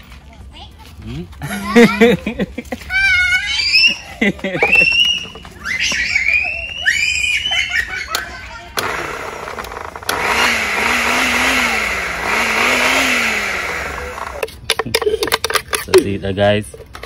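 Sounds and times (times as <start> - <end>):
electric blender whirring: 8.8 - 14.5.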